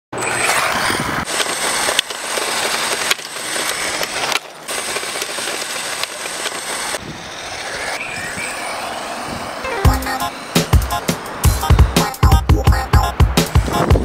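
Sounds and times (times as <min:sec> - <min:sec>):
rc car motor and tyres hissing: 0:00.2 - 0:09.6.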